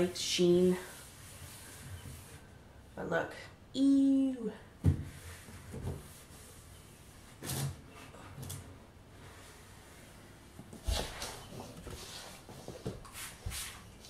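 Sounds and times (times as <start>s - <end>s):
paper towel wiping and rustling: 10.8s - 14.0s.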